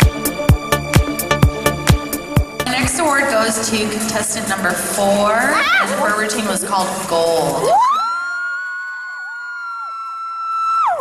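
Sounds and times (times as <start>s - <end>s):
girls screaming high-pitched: 5.5s - 6.0s, 7.6s - 11.0s
lower wavering scream: 7.7s - 11.0s.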